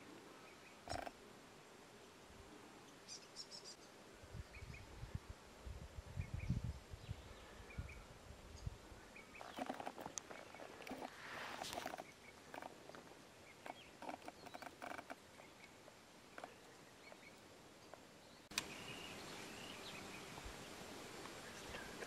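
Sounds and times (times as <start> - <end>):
steady outdoor hiss: 0.0 - 22.0
faint bird chirps: 0.4 - 1.2
soft ticks and rustles: 0.9 - 1.2, 9.3 - 18.8
sharp click: 18.5 - 18.7.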